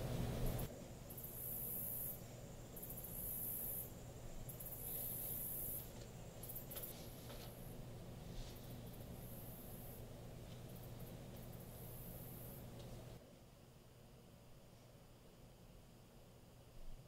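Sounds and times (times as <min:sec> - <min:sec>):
low background rumble: 0:00.0 - 0:13.2
insect trilling: 0:01.1 - 0:07.0.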